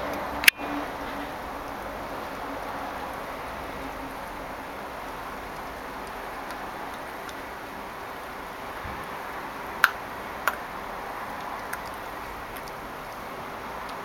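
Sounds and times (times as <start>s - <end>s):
teeth clicking on bone: 11.4s - 12.8s.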